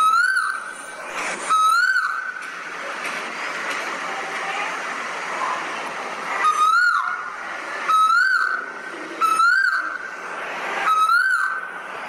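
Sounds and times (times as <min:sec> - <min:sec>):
bird whistled call: 0:00.0 - 0:00.8, 0:01.5 - 0:02.3, 0:06.4 - 0:07.2, 0:07.9 - 0:10.0, 0:10.8 - 0:11.7.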